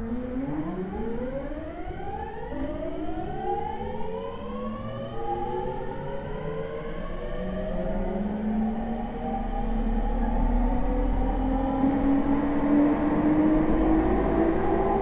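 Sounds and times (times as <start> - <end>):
low train running rumble: 0.0 - 15.0
train inverter and motors whining: 0.0 - 15.0.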